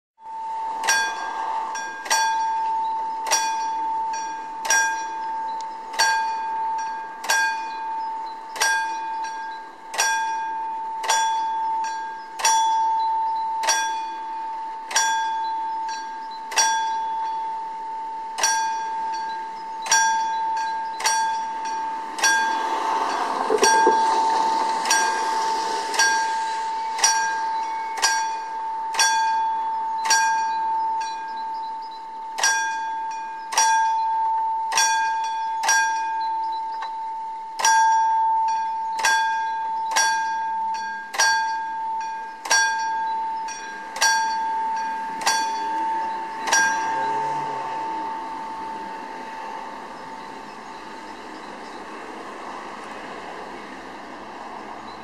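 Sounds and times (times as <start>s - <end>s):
level crossing warning bell: 0.2s - 55.0s
rushing noise: 0.3s - 3.2s, 21.0s - 29.0s, 43.3s - 55.0s.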